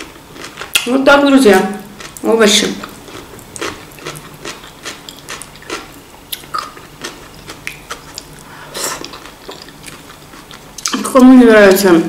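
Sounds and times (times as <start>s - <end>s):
chewing: 2.8s - 11.1s
wet mouth clicks and smacks: 6.3s - 6.8s, 7.6s - 8.3s.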